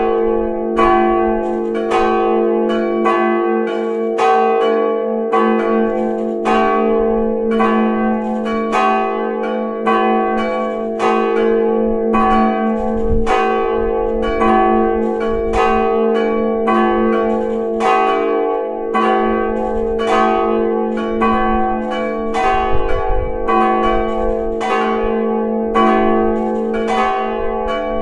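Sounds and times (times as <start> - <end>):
church bells ringing: 0.0 - 28.0.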